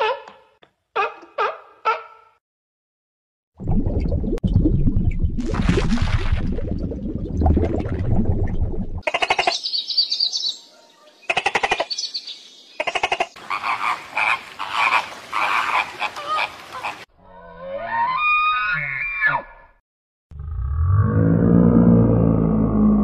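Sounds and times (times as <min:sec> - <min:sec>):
overlapping animal calls: 0:12.8 - 0:17.1.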